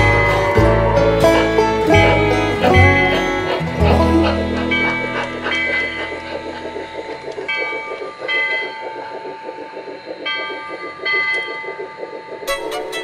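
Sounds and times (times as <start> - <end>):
model train wheels clicking: 0.0 - 13.0.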